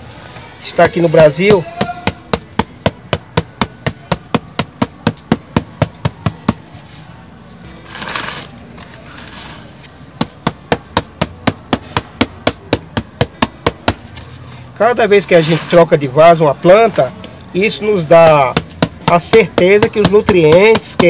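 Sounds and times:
fist knocking on plastic pot: 18.5s - 21.0s.

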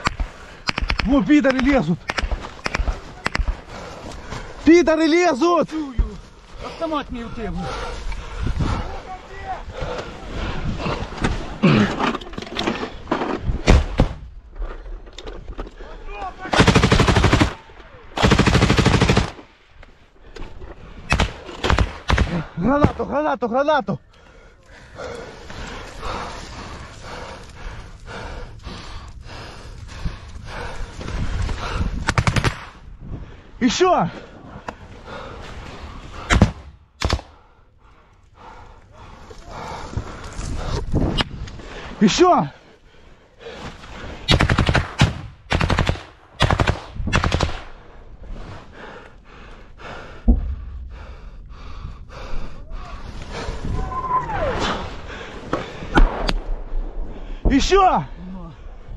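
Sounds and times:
heavy breathing: 2.7s - 4.7s, 5.8s - 13.2s, 24.0s - 32.2s, 32.8s - 44.3s, 47.7s - 53.8s, 54.8s - 58.9s
automatic rifle fire: 44.3s - 47.7s
dense rumble: 47.8s - 58.9s.

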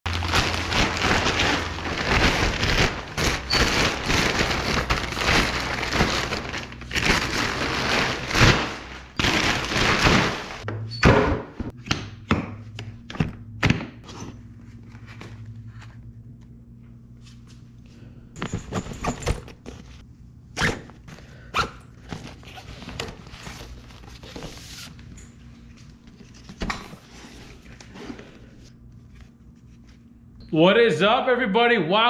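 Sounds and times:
plastic bag crinkling: 0.1s - 10.6s.

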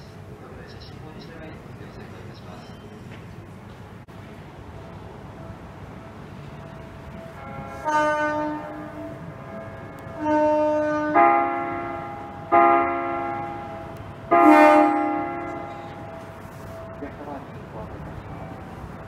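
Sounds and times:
electric train horn blasts: 7.2s - 17.4s.

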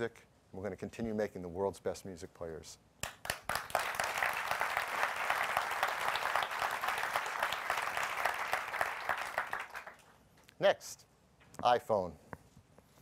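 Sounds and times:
audience applauding: 3.0s - 10.1s.

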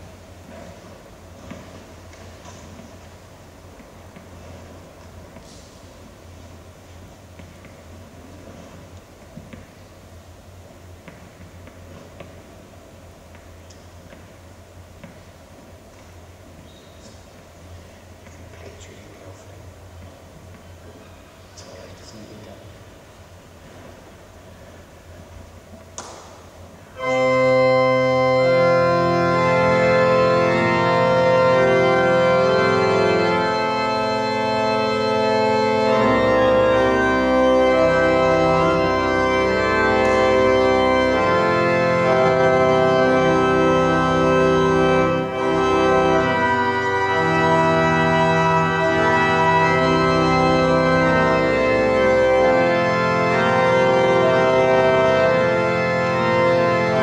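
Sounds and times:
church organ chords: 26.9s - 57.0s.

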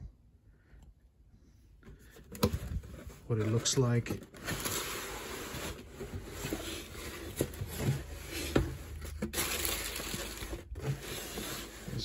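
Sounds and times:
tissue paper rustling: 2.9s - 12.0s.

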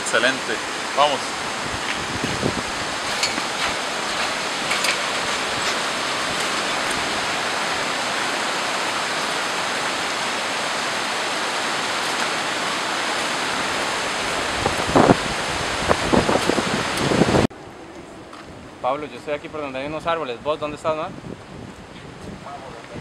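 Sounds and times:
stream running over rocks: 0.0s - 17.4s
footsteps on bridge deck: 1.8s - 7.3s.

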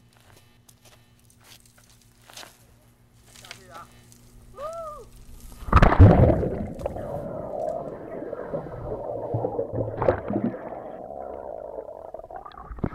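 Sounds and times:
loud splash into water: 5.7s - 10.8s
muffled underwater bubbles gurgling: 5.7s - 12.9s.

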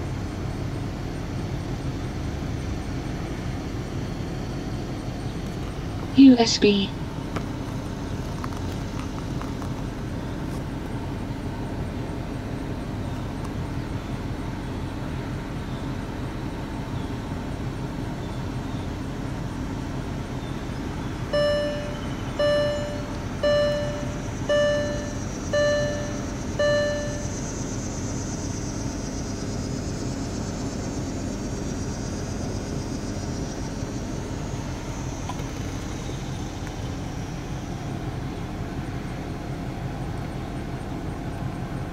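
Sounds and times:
vehicle cabin hum: 0.0s - 41.9s
short electronic beeps: 21.3s - 27.5s.

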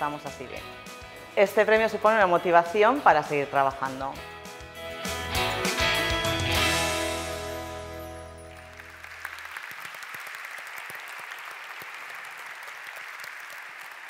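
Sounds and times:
music: 0.0s - 9.5s
audience clapping: 8.4s - 14.0s.

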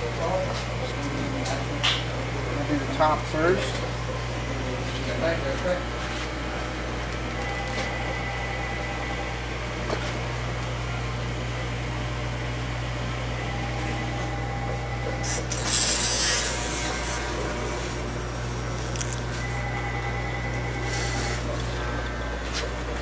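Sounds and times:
electric hair clipper humming: 15.0s - 21.5s.

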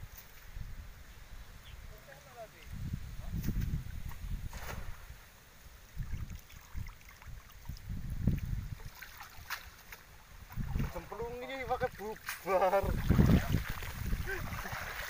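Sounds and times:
wind rumbling on microphone: 0.0s - 15.0s
water splashing and streaming: 0.3s - 15.0s.

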